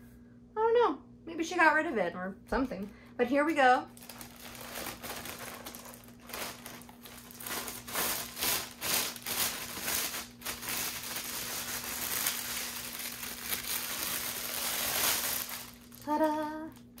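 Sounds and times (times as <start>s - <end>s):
plastic bag crinkling: 3.9s - 17.0s.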